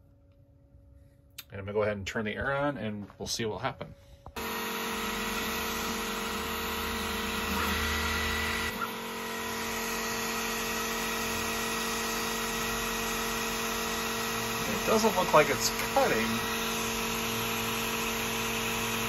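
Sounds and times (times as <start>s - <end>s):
air pump humming: 4.0s - 19.0s.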